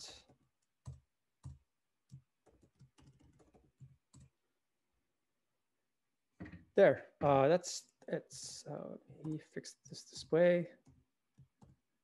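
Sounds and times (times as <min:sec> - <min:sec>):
keystrokes on computer keyboard: 0:00.3 - 0:04.3, 0:10.8 - 0:11.8.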